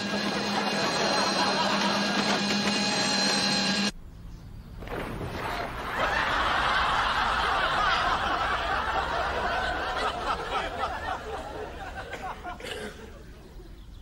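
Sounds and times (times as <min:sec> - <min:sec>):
audience laughter: 0:00.0 - 0:03.9, 0:05.5 - 0:13.6.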